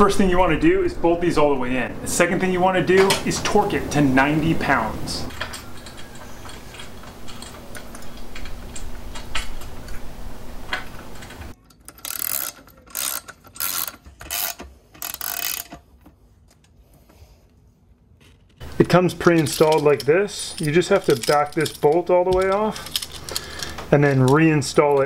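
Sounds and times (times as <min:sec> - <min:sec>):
metal parts clicking: 0:05.3 - 0:10.1, 0:10.7 - 0:16.8, 0:18.2 - 0:25.0
hand ratchet clicking: 0:11.6 - 0:15.8, 0:19.2 - 0:24.4.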